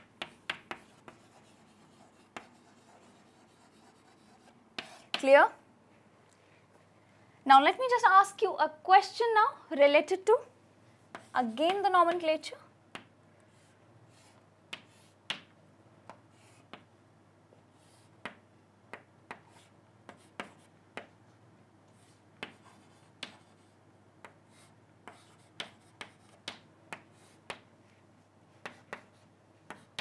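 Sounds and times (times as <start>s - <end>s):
chalk tapping on chalkboard: 0.0s - 5.3s, 12.9s - 15.5s, 16.1s - 16.9s, 17.8s - 21.2s, 21.9s - 27.7s, 28.6s - 30.0s.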